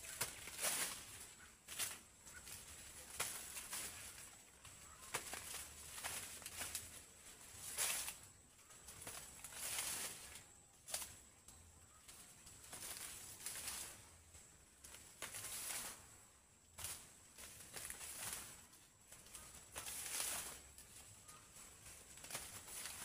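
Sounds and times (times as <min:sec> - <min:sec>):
dry leaves rustling: 0:00.0 - 0:23.0
stalks snapping: 0:02.9 - 0:06.9.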